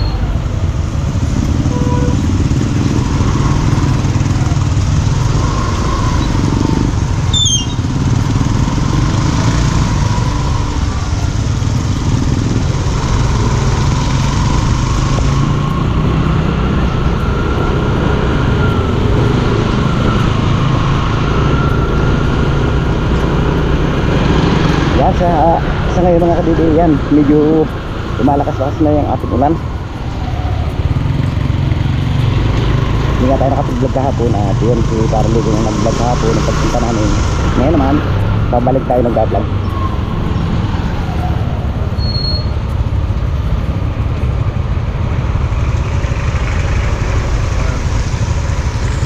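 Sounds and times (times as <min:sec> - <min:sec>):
tyres on wet road: 0:00.0 - 0:49.0
motor scooter engine: 0:00.1 - 0:49.0.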